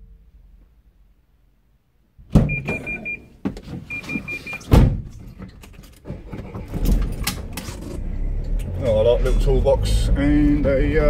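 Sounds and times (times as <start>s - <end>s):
high electronic beeps: 2.5s - 3.3s, 3.9s - 4.6s
knocks and rustling: 3.4s - 8.0s
van door shutting: 4.6s - 5.2s.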